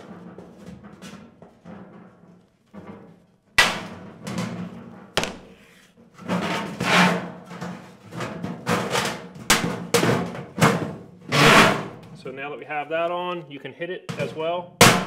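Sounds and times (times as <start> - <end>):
sheet metal booming and popping: 0.0 - 5.6, 6.2 - 12.1, 14.1 - 15.0
sharp metallic knocks: 5.2 - 5.6.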